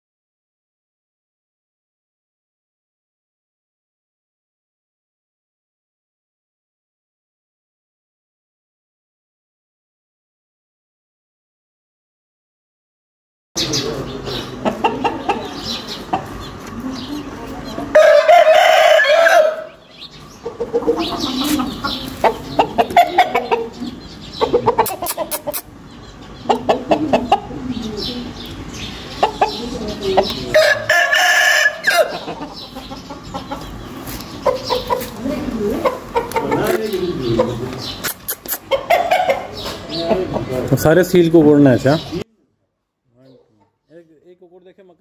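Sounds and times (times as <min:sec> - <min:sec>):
chicken clucking: 0:13.6 - 0:40.8
rooster crowing: 0:17.9 - 0:19.8, 0:30.5 - 0:32.4.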